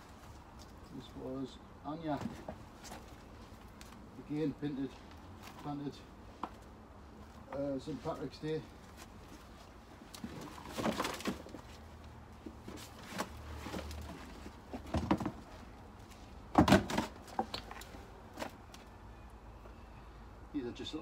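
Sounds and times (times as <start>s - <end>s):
knocks and thuds: 14.8s - 15.4s, 16.5s - 17.5s.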